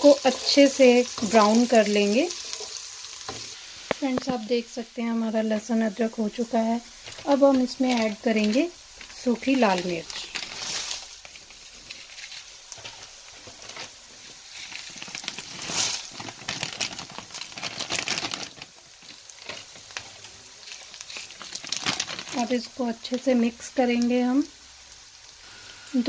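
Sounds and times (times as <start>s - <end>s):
chillies sizzling in hot oil: 0.0s - 26.0s.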